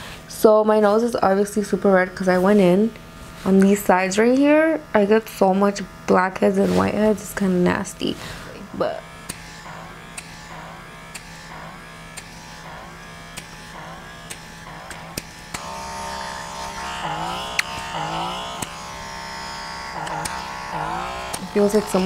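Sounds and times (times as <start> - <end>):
small motor humming in sweeps: 6.4 - 22.0.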